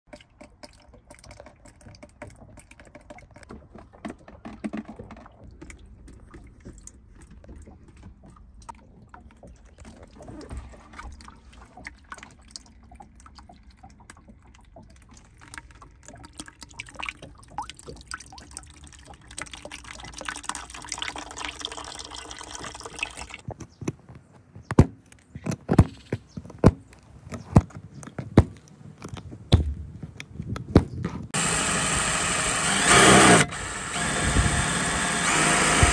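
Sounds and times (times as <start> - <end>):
water pouring into plastic bucket: 9.3 - 23.4.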